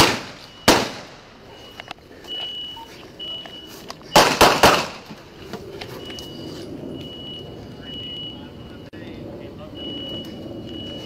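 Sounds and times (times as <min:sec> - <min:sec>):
handgun shots: 0:00.0 - 0:01.1, 0:04.2 - 0:05.0
high steady beep: 0:00.4 - 0:00.8, 0:01.4 - 0:03.8, 0:06.0 - 0:09.0, 0:09.7 - 0:11.0.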